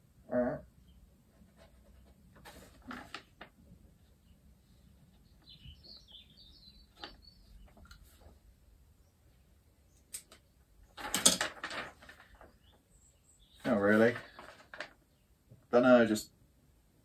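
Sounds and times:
paper rustling: 1.3s - 4.1s, 10.2s - 12.7s, 13.6s - 15.0s.

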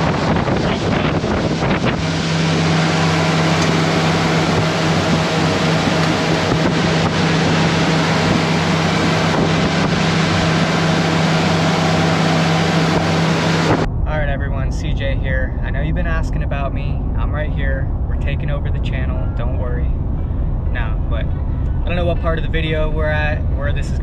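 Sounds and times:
rushing water: 0.0s - 13.9s
boat engine drone: 0.0s - 24.0s
wind buffeting microphone: 0.0s - 24.0s.

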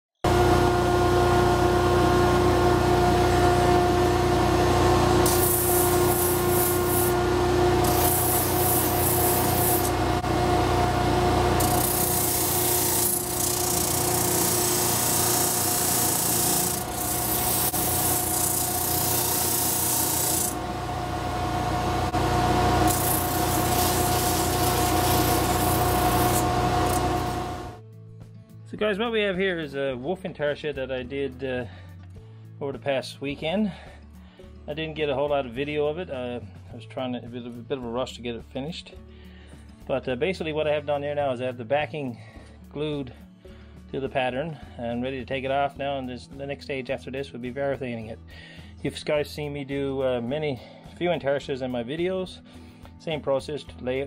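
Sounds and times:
electric motor humming: 0.3s - 27.8s
wood sanding rasp: 5.3s - 7.2s, 7.8s - 10.0s, 11.6s - 20.6s, 22.9s - 27.4s.

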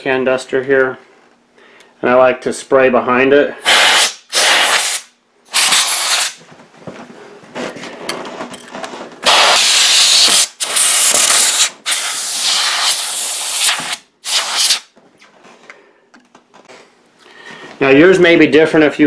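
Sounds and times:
compressed air spraying: 3.6s - 6.4s, 9.2s - 14.9s.

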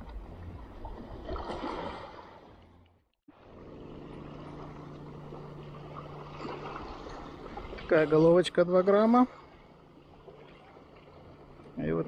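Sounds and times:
steady low hum: 2.2s - 12.0s
small waves washing on shore: 3.3s - 12.0s.

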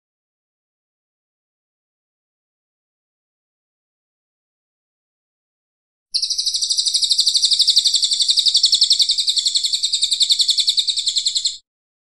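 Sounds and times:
songbird rapid high trill: 6.1s - 11.6s.

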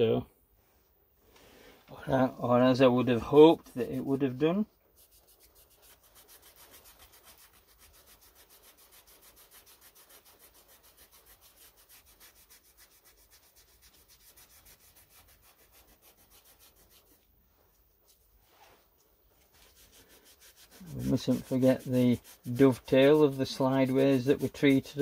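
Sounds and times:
scouring pad scrubbing metal: 3.1s - 17.2s, 19.7s - 25.0s.

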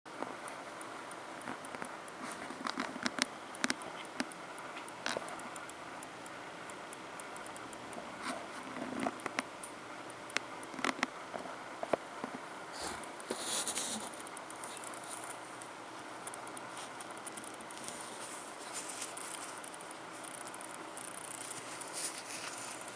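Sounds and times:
small handling clicks: 8.7s - 11.2s, 13.9s - 22.9s
steady hiss: 11.8s - 22.9s.

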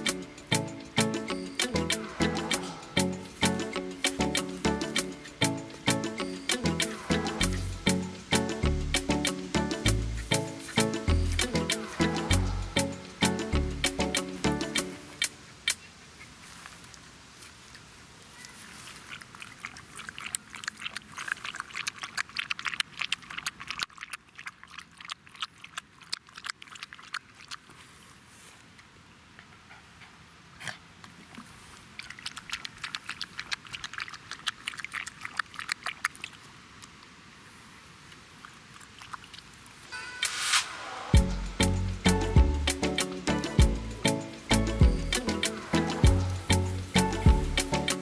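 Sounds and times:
dog lapping water: 18.9s - 28.0s, 31.0s - 37.0s, 38.4s - 39.8s.

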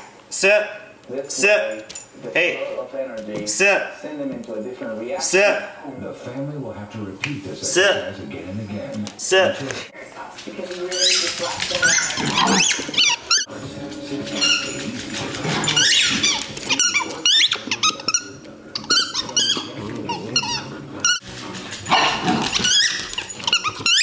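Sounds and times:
dogs squeaking: 10.8s - 13.6s, 14.3s - 24.0s
dogs growling: 11.0s - 24.0s.

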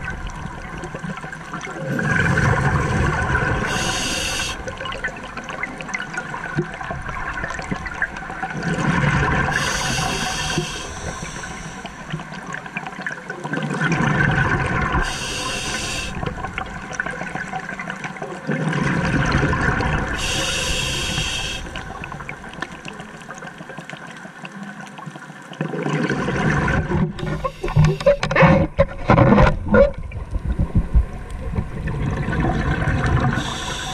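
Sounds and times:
watery wash: 0.0s - 33.9s
bubbling exhaled air: 1.8s - 5.0s, 8.6s - 12.5s, 13.8s - 16.8s, 18.5s - 23.0s, 29.6s - 33.9s
hissing regulator inhale: 3.6s - 4.6s, 9.5s - 12.2s, 15.0s - 16.2s, 20.2s - 21.9s, 27.2s - 28.3s, 33.4s - 33.9s.

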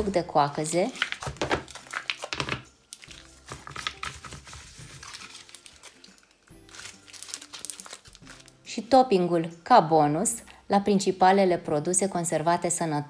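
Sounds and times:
quiet background music: 0.0s - 13.0s
plastic bags crinkling: 0.5s - 8.7s.

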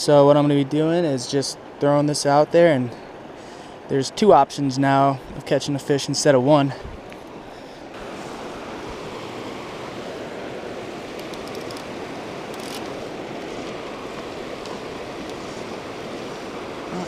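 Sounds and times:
fast river rushing over rocks: 7.4s - 17.0s.

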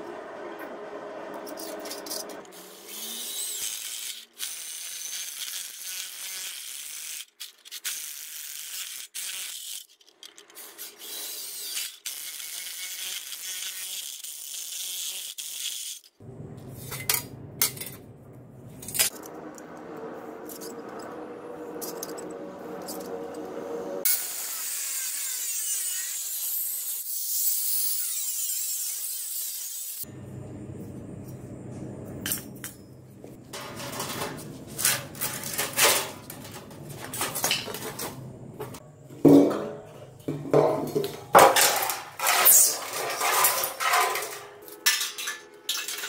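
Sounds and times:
power drill grinding through metal: 1.5s - 7.3s, 10.6s - 16.0s, 20.4s - 30.0s.

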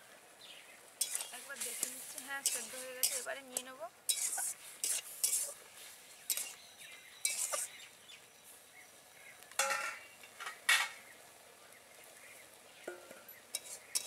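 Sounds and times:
metal spatula scraping pan: 1.0s - 5.6s, 6.3s - 6.6s, 7.2s - 7.8s, 12.9s - 14.0s.

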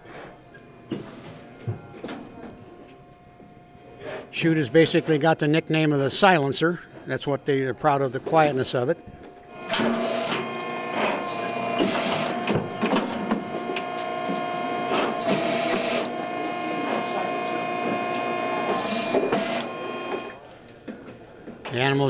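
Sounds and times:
hydraulic power unit whine: 0.0s - 20.4s
hydraulic hissing surges: 9.5s - 20.4s.

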